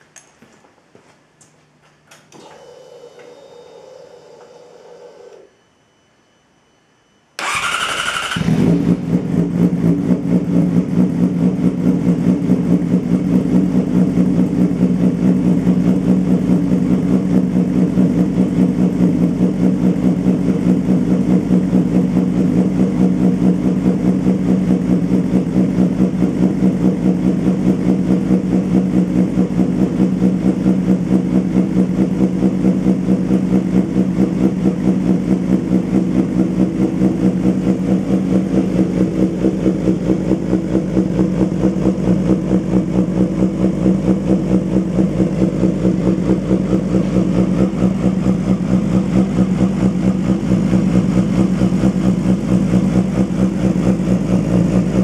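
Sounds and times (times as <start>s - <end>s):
fuel pump electric whir: 2.3s - 5.5s
motorcycle engine idling: 7.4s - 55.0s.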